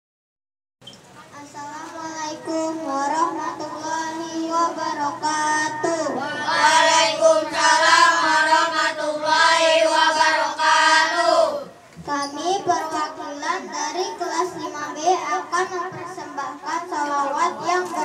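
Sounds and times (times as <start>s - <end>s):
children singing: 2.2s - 11.8s.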